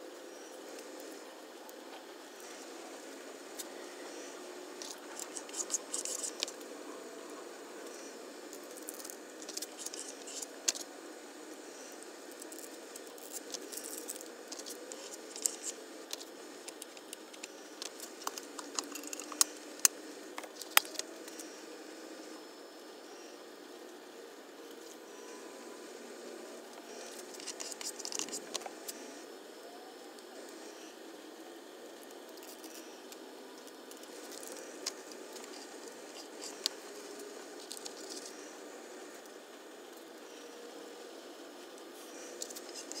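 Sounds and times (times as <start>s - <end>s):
tape peeling and crinkling: 4.8s - 6.7s, 12.4s - 21.4s, 27.0s - 28.8s, 33.9s - 38.5s.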